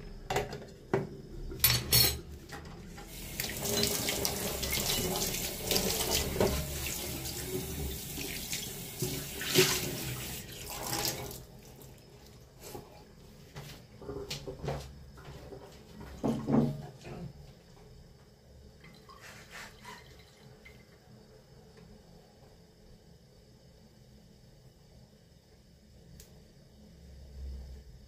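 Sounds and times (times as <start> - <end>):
tap water running: 2.7 - 12.0, 18.8 - 21.0.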